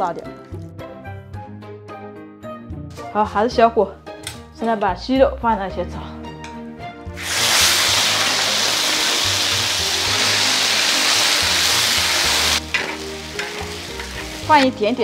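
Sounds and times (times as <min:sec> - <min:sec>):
chicken sizzling in hot oil: 0:07.2 - 0:15.0.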